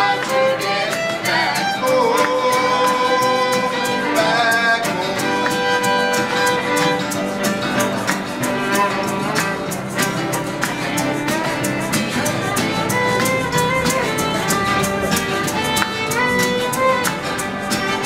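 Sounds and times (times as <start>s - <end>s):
fiddle melody: 0.0s - 18.0s
folk band playing: 0.0s - 18.0s.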